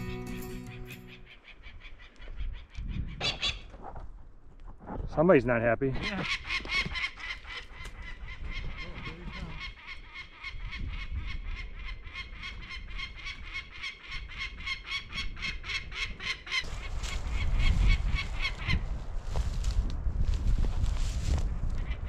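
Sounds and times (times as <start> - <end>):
wind rumbling on microphone: 1.8 - 5.2, 6.0 - 22.0
bird of prey alarm calls: 6.1 - 18.9.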